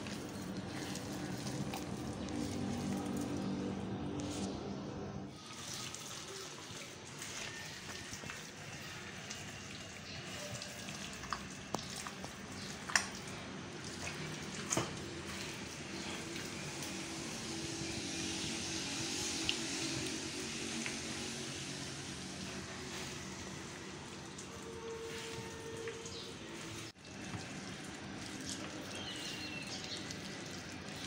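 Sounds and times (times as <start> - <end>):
hand kneading wet batter: 0.0 - 4.7, 6.8 - 17.0, 22.4 - 31.0.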